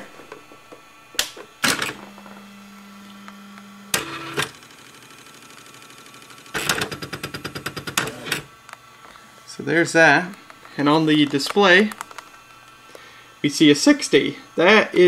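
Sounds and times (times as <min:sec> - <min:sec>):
typewriter motor hum: 0:01.0 - 0:08.6.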